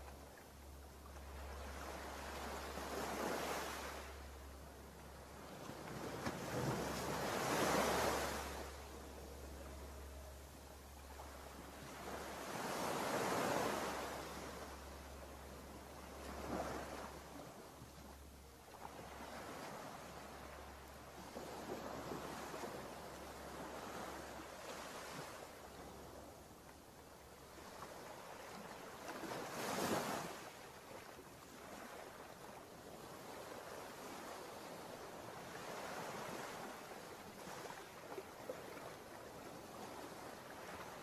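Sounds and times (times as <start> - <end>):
ocean surf breaking on beach: 5.5 - 8.8, 11.9 - 14.8.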